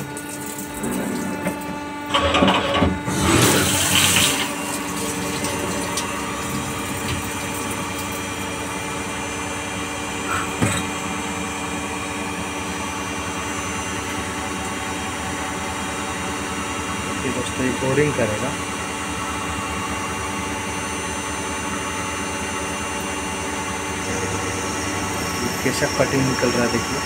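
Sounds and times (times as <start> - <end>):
coolant splashing: 0.0 - 1.7, 3.3 - 8.6
lathe machine hum: 0.0 - 27.0.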